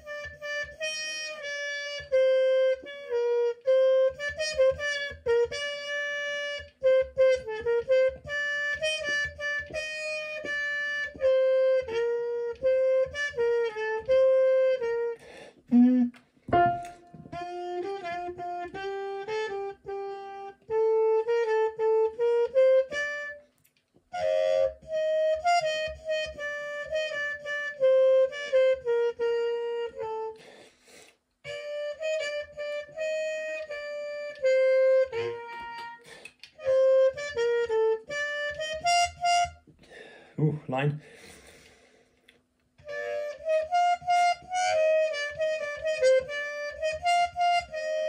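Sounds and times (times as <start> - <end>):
trumpet playing slow melody: 0.0 - 23.5, 24.1 - 30.6, 31.4 - 39.6, 42.8 - 48.0
player breathing: 30.4 - 31.2, 39.8 - 40.4, 41.0 - 42.3.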